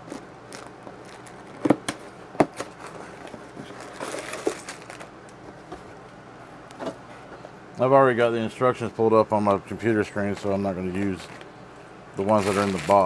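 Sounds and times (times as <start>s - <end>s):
plastic bags and paper crinkling: 0.1s - 1.7s, 2.6s - 5.1s, 10.3s - 11.5s, 12.2s - 13.0s.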